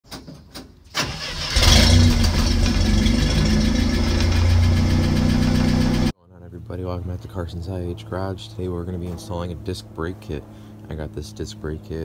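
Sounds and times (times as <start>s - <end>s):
car engine starting and idling: 0.9s - 6.2s.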